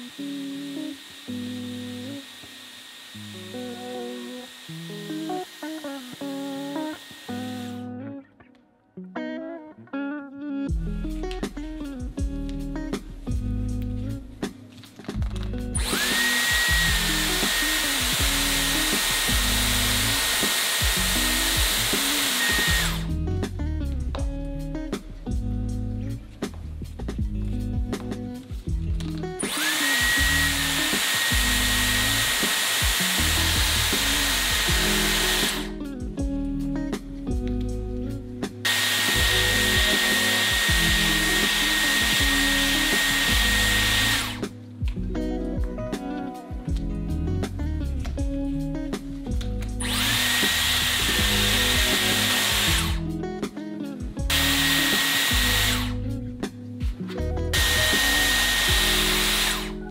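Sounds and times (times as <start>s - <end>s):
hair styler motor whine: 0.0s - 7.8s, 15.8s - 23.1s, 29.4s - 35.8s, 38.6s - 44.5s, 49.8s - 53.0s, 54.3s - 56.0s, 57.5s - 59.9s
acoustic guitar music: 53.0s - 59.9s.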